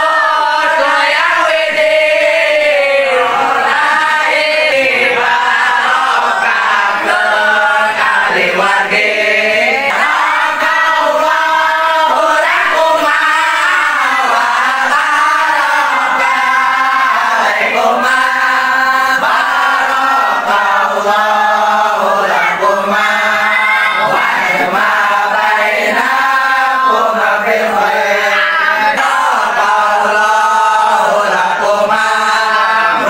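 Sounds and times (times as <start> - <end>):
men chanting in unison: 0.0 - 33.0.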